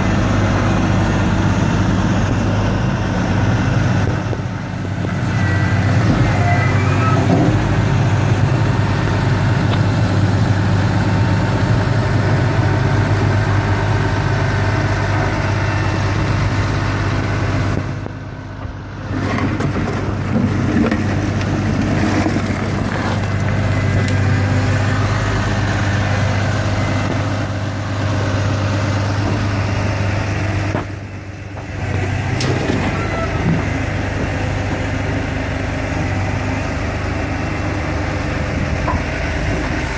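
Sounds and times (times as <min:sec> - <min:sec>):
diesel engine running steadily: 0:00.0 - 0:39.9
hydraulic grab crane working: 0:00.1 - 0:39.9
clunks of soil and rubble: 0:17.6 - 0:39.9.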